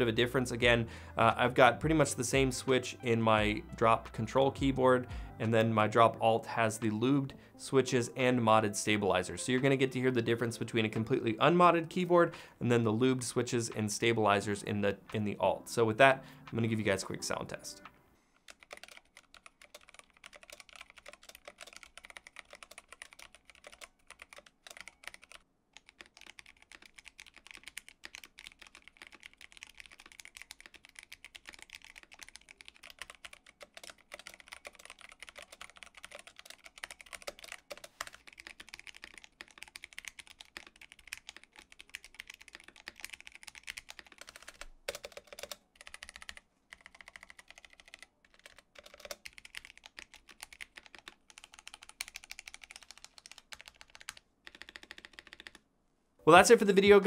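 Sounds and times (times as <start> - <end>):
mechanical keyboard typing: 18.5 - 55.6.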